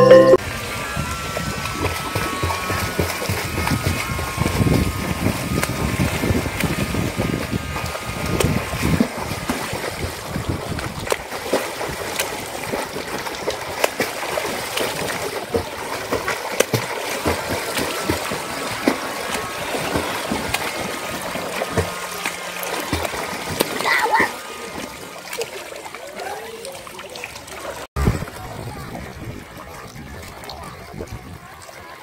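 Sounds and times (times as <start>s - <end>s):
swimmer splashing water: 0.0s - 32.0s.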